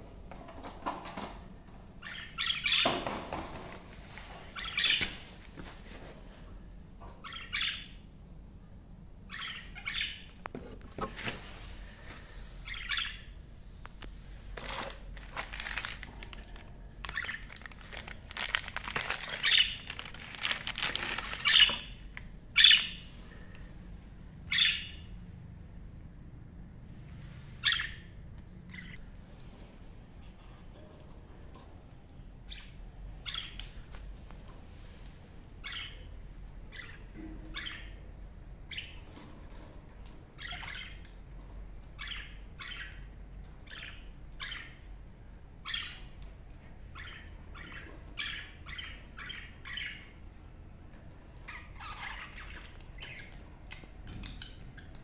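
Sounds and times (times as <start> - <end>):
budgerigars chirping and squawking: 2.0 - 3.1, 4.5 - 5.3, 7.2 - 8.0, 9.3 - 10.3, 12.6 - 13.4, 17.0 - 23.1, 24.5 - 25.1, 27.6 - 29.0, 32.5 - 33.6, 35.6 - 36.1, 36.7 - 38.0, 38.7 - 39.2, 40.4 - 41.2, 42.0 - 44.9, 45.6 - 46.2, 46.9 - 50.2, 51.4 - 55.0
rattling wire cages: 14.6 - 21.9.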